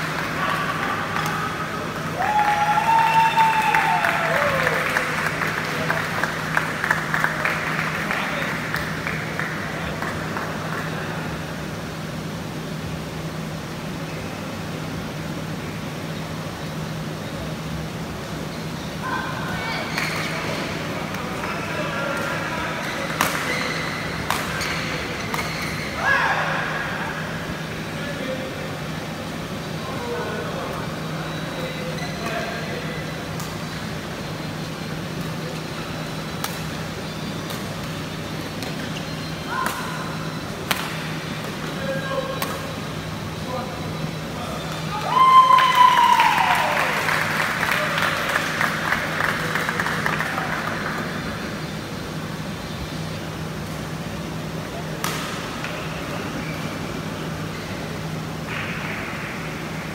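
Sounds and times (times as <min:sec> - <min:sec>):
hall hum and hiss: 0:00.0 - 0:59.9
racket striking shuttlecock: 0:23.1 - 0:23.6, 0:40.6 - 0:41.6, 0:42.4 - 0:42.6, 0:55.0 - 0:55.8.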